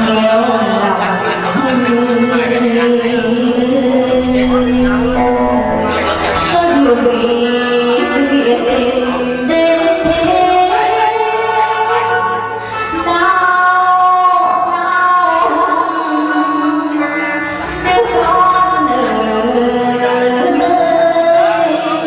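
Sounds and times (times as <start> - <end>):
woman singing into microphone: 0.0 - 22.0
musical accompaniment: 1.0 - 10.2.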